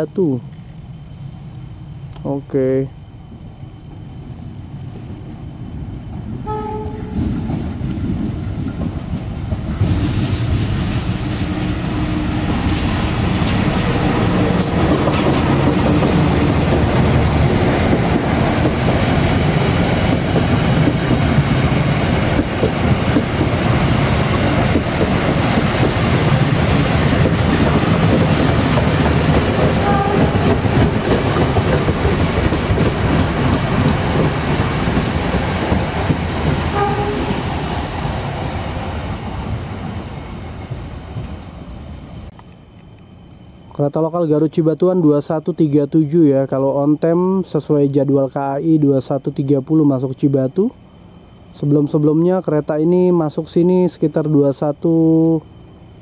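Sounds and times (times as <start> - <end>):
rail noise: 0.0 - 56.0
diesel train passing: 3.1 - 42.6.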